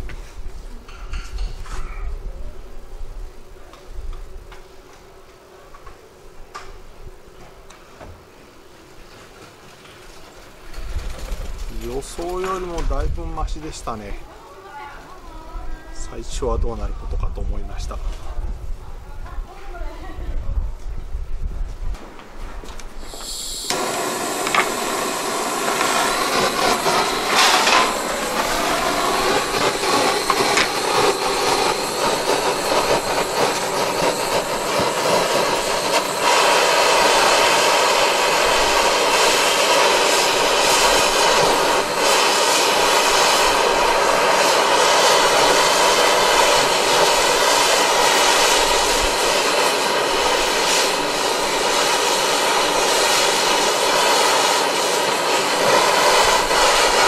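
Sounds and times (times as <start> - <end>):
gas torch hissing: 10.0 - 18.8, 22.6 - 57.0.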